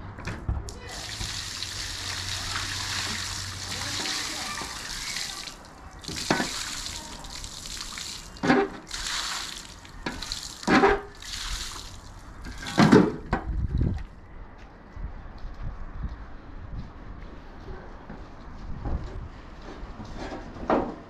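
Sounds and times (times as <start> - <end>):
water splashing in metal wheelbarrow: 0.7 - 13.2.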